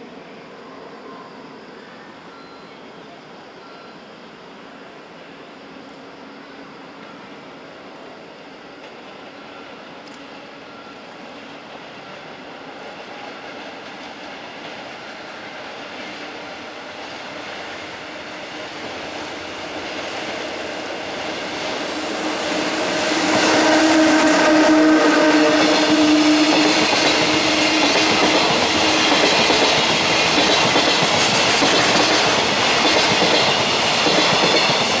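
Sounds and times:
steady tone from locomotive: 0:00.0 - 0:35.0
locomotive passing: 0:13.0 - 0:35.0.

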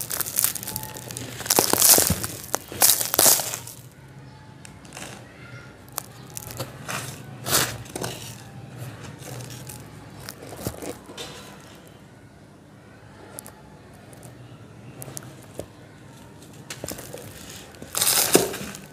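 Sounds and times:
loose sand pouring: 0:00.0 - 0:03.8
sand blocks crunching: 0:00.0 - 0:03.9, 0:05.8 - 0:11.7, 0:16.4 - 0:18.9.

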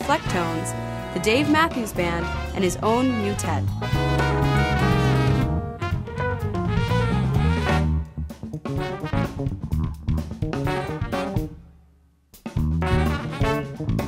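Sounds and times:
saxophone: 0:00.0 - 0:08.2, 0:10.7 - 0:11.5, 0:12.8 - 0:14.0
trumpet: 0:00.0 - 0:09.5, 0:10.6 - 0:11.6, 0:12.8 - 0:14.0
drum kit: 0:00.0 - 0:11.6, 0:12.3 - 0:14.0
electric bass: 0:00.0 - 0:11.6, 0:12.5 - 0:14.0.

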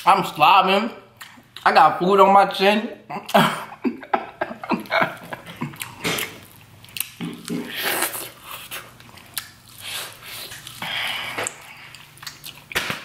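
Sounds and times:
person chewing crunchy corn: 0:04.8 - 0:12.8.

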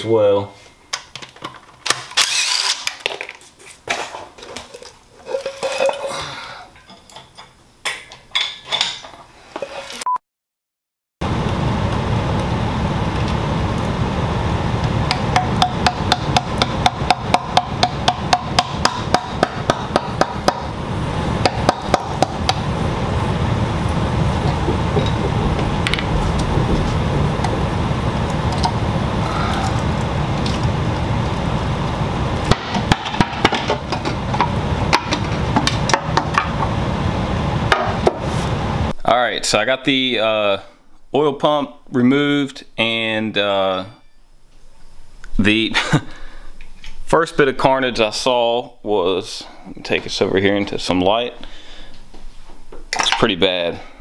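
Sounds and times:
cordless power driver bursts: 0:02.2 - 0:02.9.

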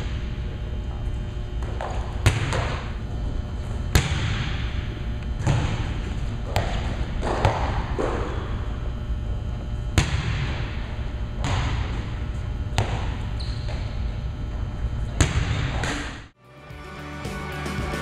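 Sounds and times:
low room rumble: 0:00.0 - 0:16.4
volleyball sharp smacks: 0:01.8 - 0:02.9, 0:03.9 - 0:04.8, 0:10.0 - 0:10.8, 0:11.4 - 0:12.1, 0:15.2 - 0:16.3.

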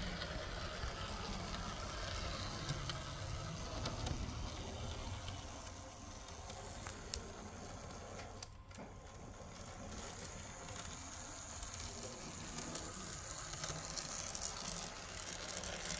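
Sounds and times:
model train motor whirring: 0:00.0 - 0:15.9
wheels clicking on rails: 0:00.0 - 0:15.9.

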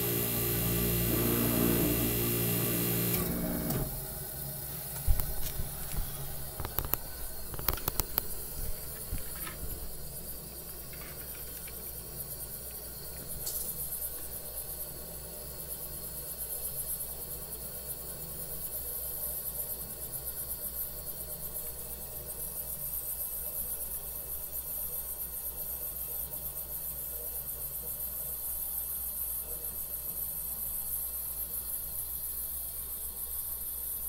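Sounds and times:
compressor electric hum: 0:00.0 - 0:10.5
faint steady hiss: 0:00.0 - 0:34.0.

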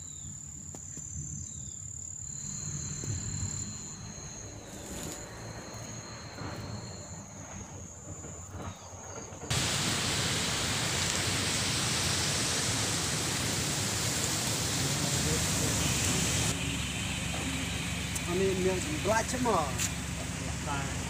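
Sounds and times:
insects calling high-pitched: 0:00.0 - 0:21.0
flooded stream rushing: 0:09.5 - 0:16.7.

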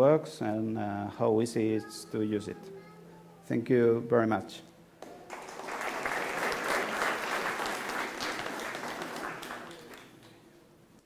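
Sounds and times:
audience applauding: 0:05.1 - 0:10.4.

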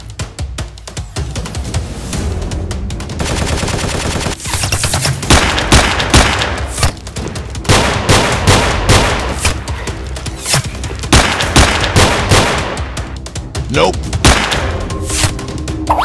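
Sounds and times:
gunshots and short bursts: 0:03.2 - 0:07.0, 0:07.7 - 0:09.6, 0:10.4 - 0:13.0, 0:14.2 - 0:14.8.

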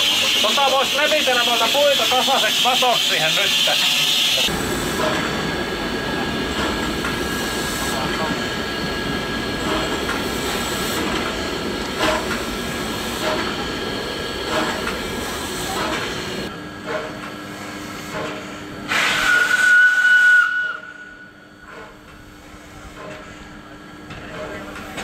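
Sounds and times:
steam hissing: 0:00.0 - 0:16.5, 0:17.5 - 0:21.2
steam whistle: 0:18.9 - 0:21.4.

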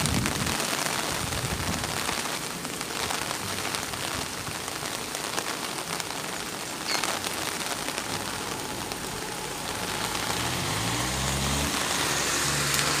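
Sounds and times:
heavy rain on pavement: 0:00.0 - 0:13.0
car engine pulling away: 0:08.2 - 0:13.0.

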